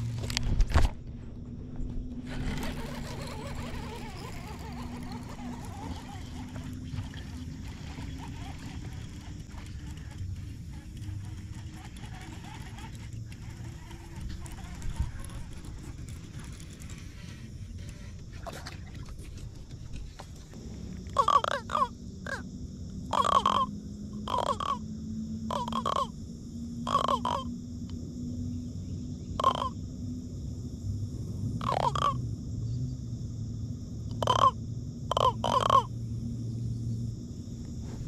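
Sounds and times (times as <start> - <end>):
catfish croaking: 2.2 - 17.0, 21.1 - 22.5, 23.1 - 24.9, 25.5 - 26.2, 26.8 - 27.6, 29.4 - 29.8, 31.6 - 32.2, 34.1 - 36.0.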